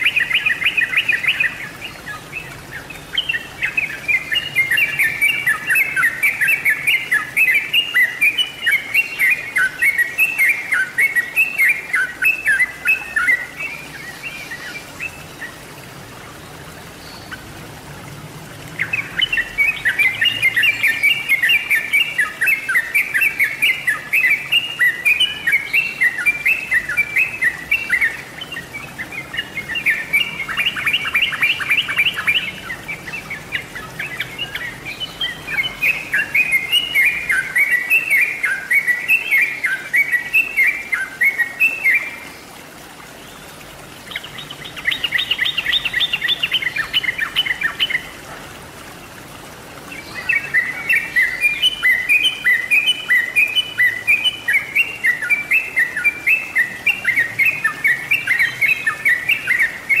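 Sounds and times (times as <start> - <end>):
bulbul song: 0.0 - 15.6, 18.7 - 42.2.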